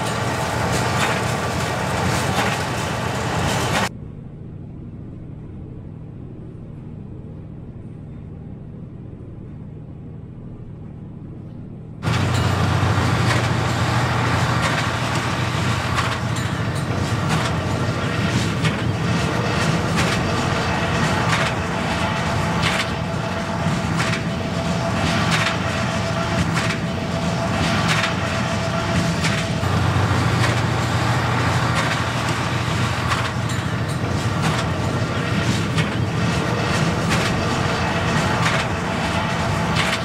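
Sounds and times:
tractor running under load: 0.0s - 3.9s, 12.0s - 40.0s.

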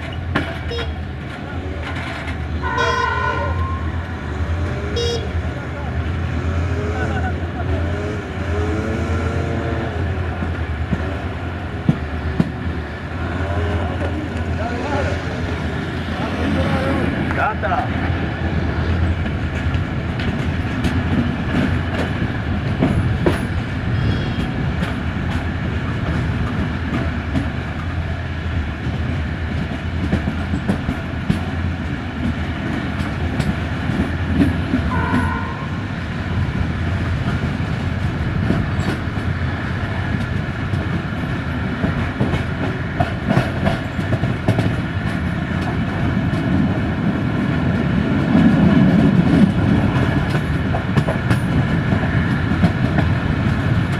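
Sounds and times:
wheels clicking over rail joints: 0.0s - 3.0s, 37.2s - 53.9s
train wheels rumbling on rails: 0.0s - 53.9s.

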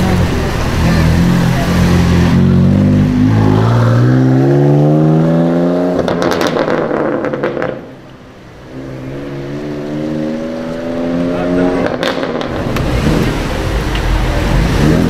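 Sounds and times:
car engine accelerating: 0.0s - 15.0s
exhaust crackles and pops: 6.0s - 8.2s, 11.8s - 15.0s.

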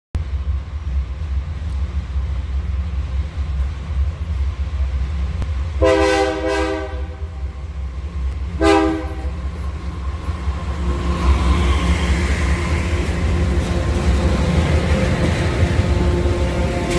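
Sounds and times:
diesel locomotive engine rumble: 0.2s - 16.9s
train wheels on rails: 0.2s - 16.9s
train air horn blasts: 5.8s - 7.4s, 8.6s - 9.4s.

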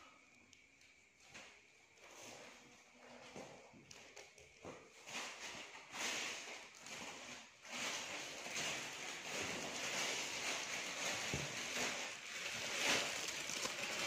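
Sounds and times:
clothes rustling: 4.7s - 14.0s.

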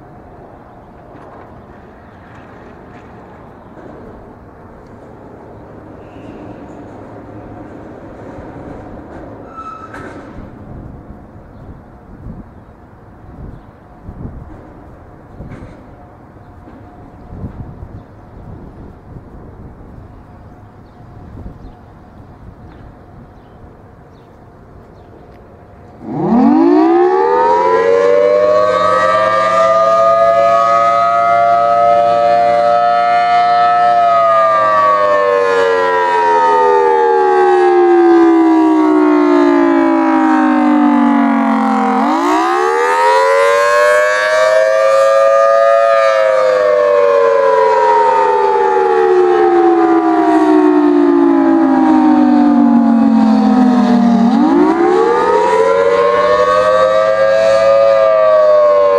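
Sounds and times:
warning siren wailing: 25.3s - 58.9s.

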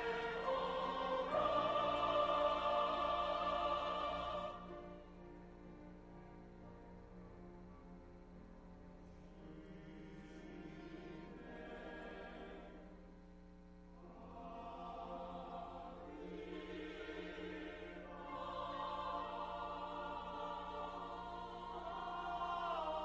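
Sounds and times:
choir singing: 0.0s - 5.0s, 9.4s - 12.9s, 14.0s - 23.0s
string ensemble: 0.0s - 5.0s, 14.1s - 23.0s.

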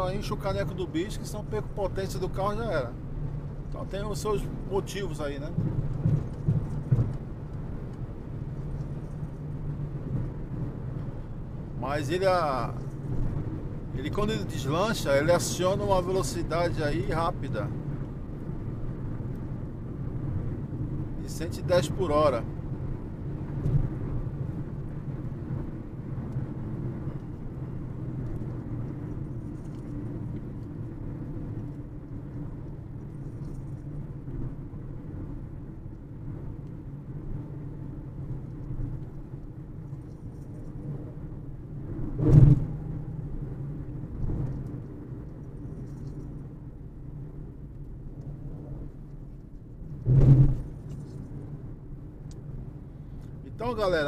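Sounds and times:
car engine and tyre drone: 0.0s - 54.0s
sharp thumps: 50.0s - 50.8s.

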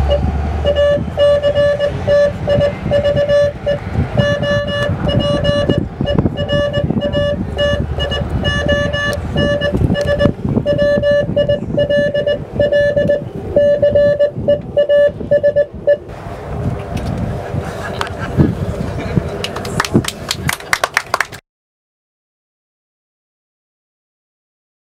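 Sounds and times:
morse code beeps: 0.0s - 16.1s
low rumbling background noise: 0.0s - 21.4s.

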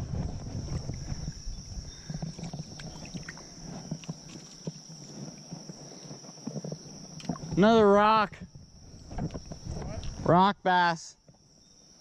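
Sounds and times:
faint clicks and rustles: 0.0s - 7.6s
water moving around legs: 0.4s - 7.6s.

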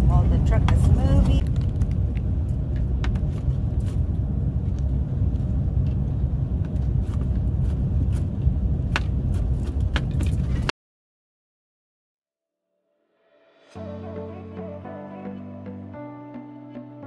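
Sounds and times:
truck rumbling on road: 0.0s - 10.7s.

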